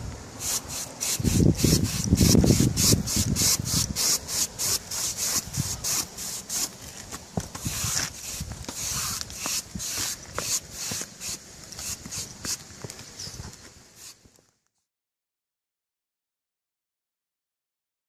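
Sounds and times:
bristle brush scrubbing bricks: 0:00.4 - 0:14.3.

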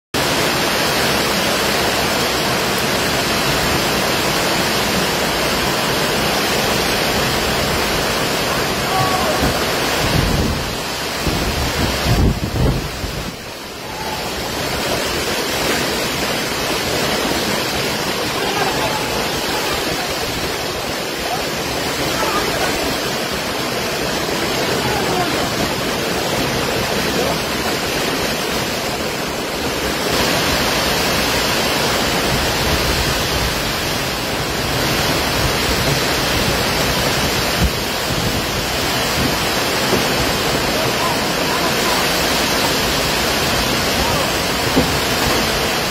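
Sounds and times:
strong wind: 0:00.2 - 0:45.9
torrential rain: 0:00.2 - 0:45.9.

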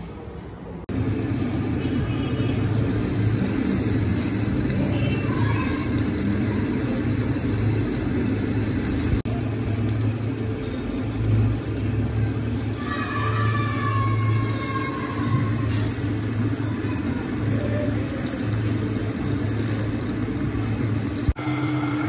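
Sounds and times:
metal lathe cutting: 0:18.2 - 0:22.0.

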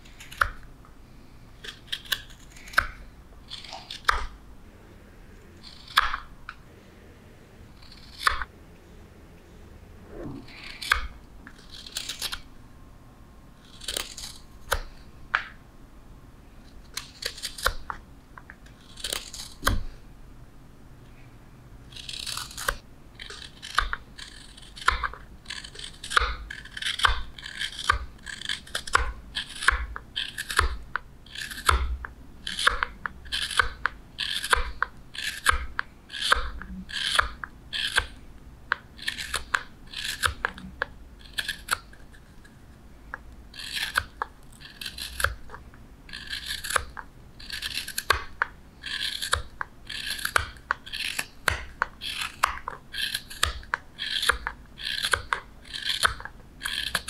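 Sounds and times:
knife scraping wood: 0:01.6 - 0:04.4, 0:05.6 - 0:06.3, 0:07.7 - 0:08.5, 0:10.4 - 0:12.4, 0:13.6 - 0:15.0, 0:18.7 - 0:19.9, 0:21.9 - 0:42.6, 0:43.5 - 0:57.0.

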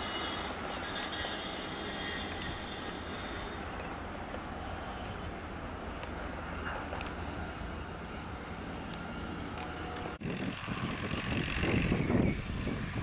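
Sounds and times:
diesel locomotive engine droning: 0:00.0 - 0:13.0
distant diesel rail rumble: 0:00.0 - 0:13.0
outdoor ambience: 0:00.0 - 0:13.0.

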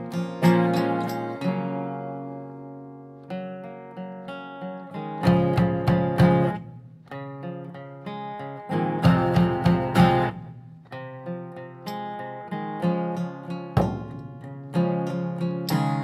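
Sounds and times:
acoustic guitars playing: 0:00.0 - 0:16.0
drum beating: 0:13.8 - 0:14.4.

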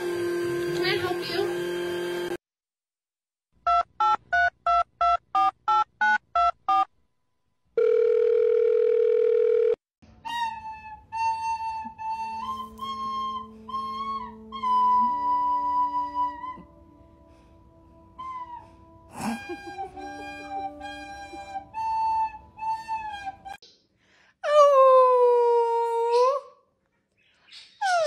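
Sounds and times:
steady phone tone: 0:07.8 - 0:09.8
flute-like melody: 0:10.0 - 0:23.6.

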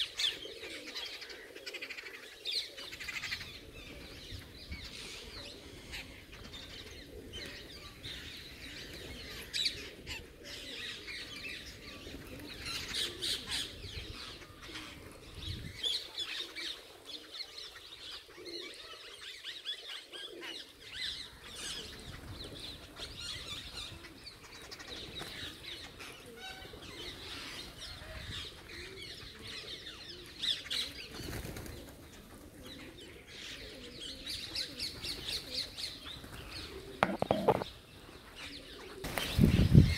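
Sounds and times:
flock of birds chirping: 0:00.0 - 0:39.9
wings flapping: 0:31.2 - 0:32.4, 0:39.0 - 0:39.5.

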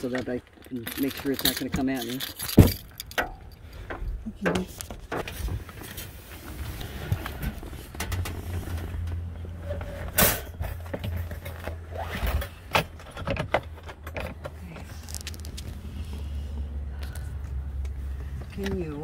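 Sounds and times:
wire trap clattering against carrier: 0:00.0 - 0:04.6.

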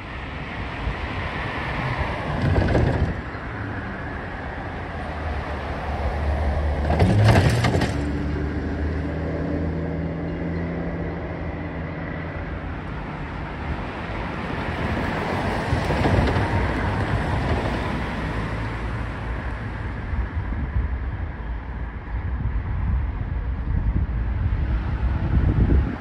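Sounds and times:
low traffic rumble: 0:00.0 - 0:26.0
wind buffeting microphone: 0:00.6 - 0:08.1, 0:13.4 - 0:26.0.

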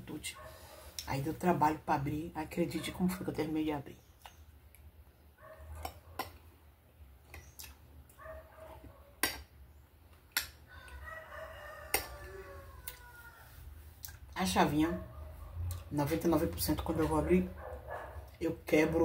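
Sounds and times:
distant rooster crowing: 0:10.6 - 0:13.8.

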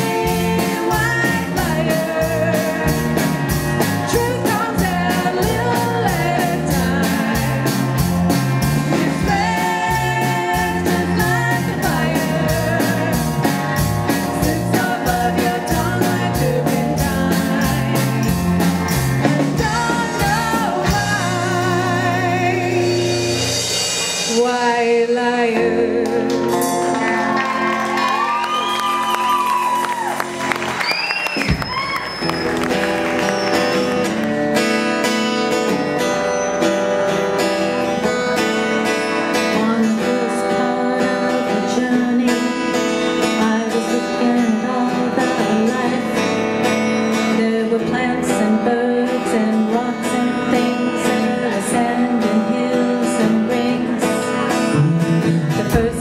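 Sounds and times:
drums playing steady beat: 0:00.0 - 0:24.8, 0:54.4 - 0:56.0
live rock band: 0:00.0 - 0:56.0.

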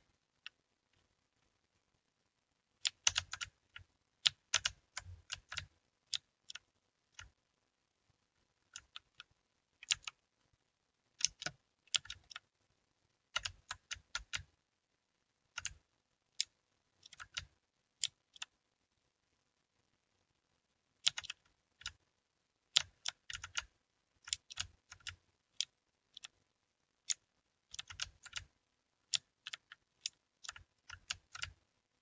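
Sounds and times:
mechanical keyboard typing clicks: 0:02.8 - 0:07.3, 0:08.8 - 0:10.2, 0:11.2 - 0:12.4, 0:13.4 - 0:14.5, 0:16.4 - 0:18.5, 0:21.0 - 0:22.0, 0:22.8 - 0:26.3, 0:27.1 - 0:28.5, 0:29.1 - 0:31.6.

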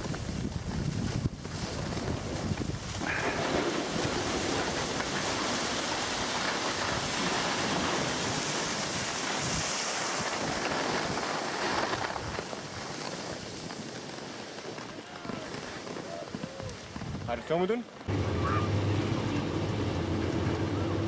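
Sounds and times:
wind on microphone: 0:00.0 - 0:12.8, 0:15.2 - 0:17.3
skis scraping on snow: 0:00.0 - 0:18.1.

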